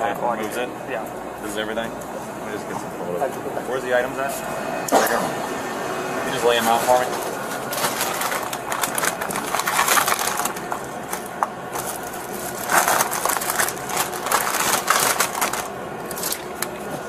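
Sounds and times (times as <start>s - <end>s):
plastic bags crinkling: 6.9s - 16.8s.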